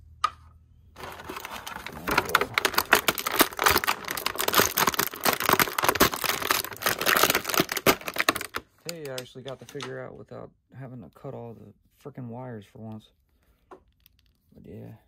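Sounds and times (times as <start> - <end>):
plastic packaging crinkling: 1.0 - 9.8.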